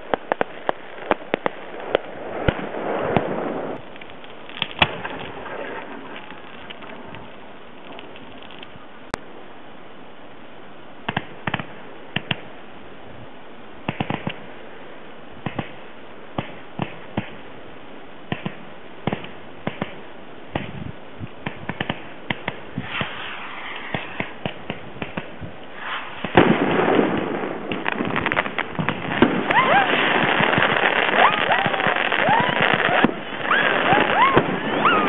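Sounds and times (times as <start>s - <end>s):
fireworks bangs and pops: 0.0s - 8.8s, 11.1s - 12.5s, 13.8s - 14.4s, 15.4s - 15.8s, 16.4s - 17.4s, 18.3s - 35.0s
fireworks crackling: 0.0s - 9.2s, 13.8s - 14.8s, 18.2s - 35.0s.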